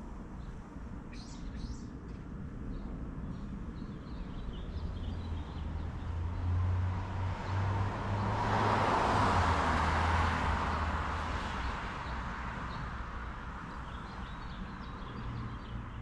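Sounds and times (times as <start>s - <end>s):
car driving past: 5.1s - 13.0s.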